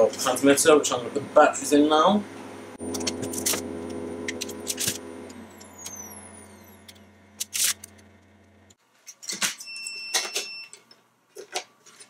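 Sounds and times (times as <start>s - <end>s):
steady low hum: 0.0s - 8.8s.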